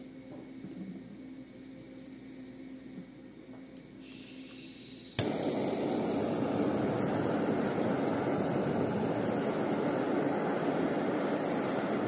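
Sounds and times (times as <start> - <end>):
torch igniter click: 3.8 - 12.0
gas hissing: 4.0 - 12.0
flame roaring: 4.1 - 12.0.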